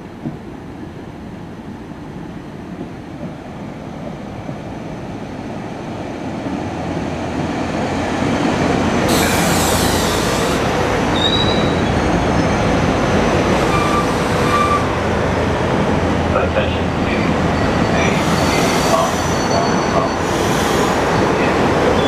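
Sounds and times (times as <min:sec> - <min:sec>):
train wheels rumbling: 0:02.5 - 0:22.0
high wheel squeal: 0:09.1 - 0:14.9, 0:17.1 - 0:21.0.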